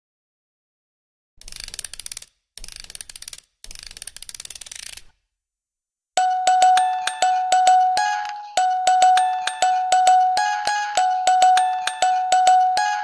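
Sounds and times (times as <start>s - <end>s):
ratchet-like clicking: 1.4s - 5.2s
bright struck musical notes: 6.2s - 13.0s.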